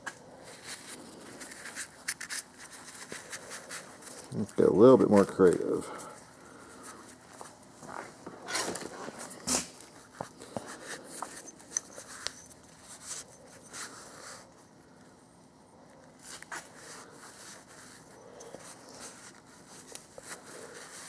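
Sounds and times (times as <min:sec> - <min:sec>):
small clicks and scuffs: 0:16.1 - 0:21.0.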